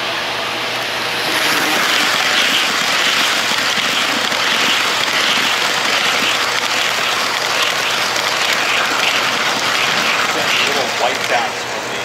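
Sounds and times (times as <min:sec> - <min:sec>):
model train wheels rushing on rail: 0:00.8 - 0:12.0.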